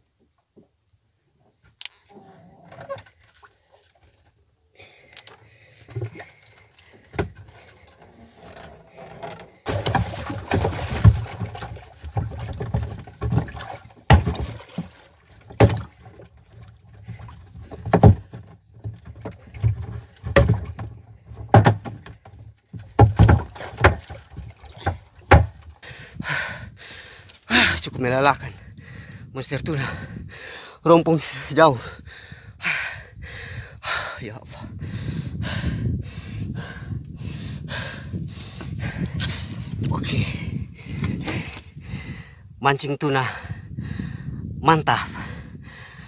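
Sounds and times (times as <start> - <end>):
fish splashing and thrashing: 2.8 - 26.0
heavy thuds of wooden club: 24.8 - 25.6.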